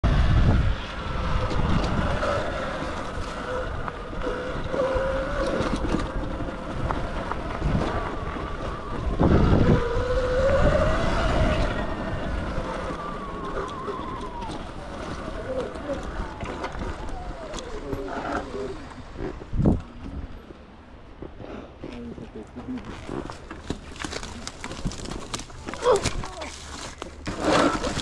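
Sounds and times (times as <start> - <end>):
wind rumbling on microphone: 0.0 - 28.0
tyre noise: 0.1 - 28.0
electric motor whine: 0.4 - 19.0.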